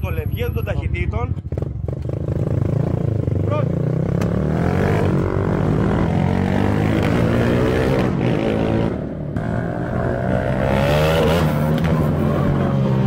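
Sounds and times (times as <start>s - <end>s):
motorcycle engine running: 0.0s - 6.7s.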